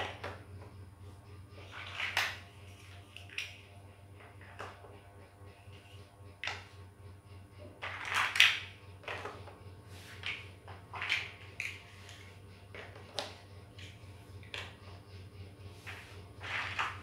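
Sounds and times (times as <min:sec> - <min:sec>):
low steady hum: 0:00.0 - 0:17.0
plastic toy bricks clattering: 0:01.6 - 0:03.6, 0:07.8 - 0:09.5, 0:10.1 - 0:14.8.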